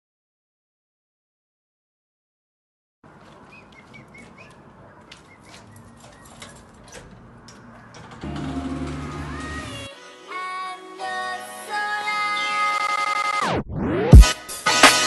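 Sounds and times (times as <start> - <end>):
birds chirping: 3.1 - 8.4
door latch clicking and rattling: 5.6 - 8.6.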